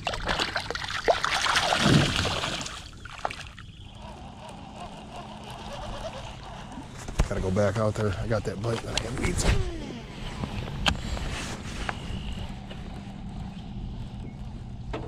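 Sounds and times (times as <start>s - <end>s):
fish splashing in shallow water: 0.0s - 3.9s.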